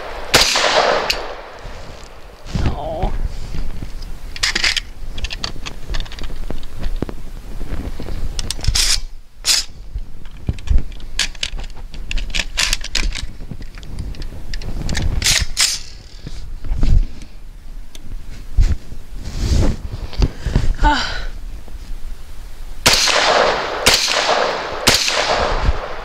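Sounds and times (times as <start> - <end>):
rifle clicks and rattles: 4.3 - 7.1, 8.4 - 16.2
rifle magazine clicking into place: 10.6 - 14.3.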